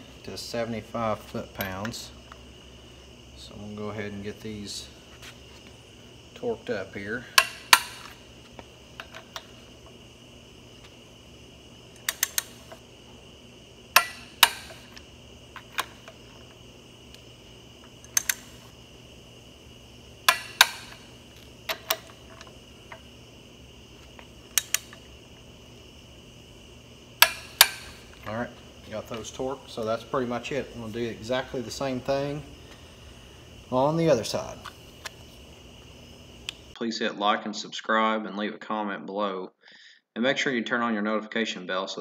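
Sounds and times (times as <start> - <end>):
torque wrench clicks: 7.3 - 8.2, 11.9 - 12.8, 13.9 - 18.7, 20.2 - 23.1, 24.1 - 25.1, 27.2 - 28.3.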